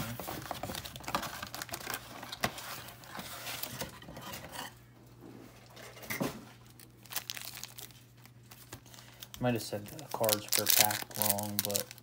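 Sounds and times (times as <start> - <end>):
foil packs rustling: 0.0 - 3.9, 6.6 - 12.0.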